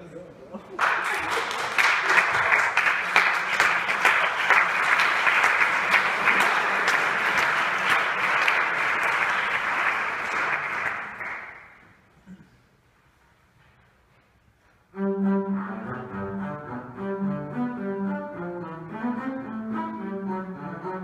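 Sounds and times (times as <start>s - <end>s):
audience applauding: 0.8s - 12.0s.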